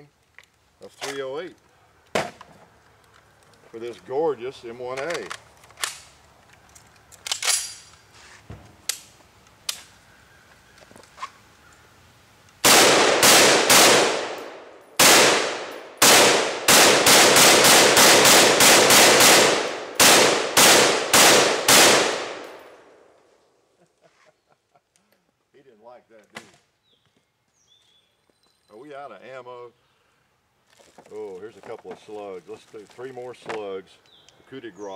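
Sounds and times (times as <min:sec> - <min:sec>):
metallic clicks of rifle loading: 0:04.9 - 0:08.1
rifle shots with echo: 0:12.6 - 0:23.0.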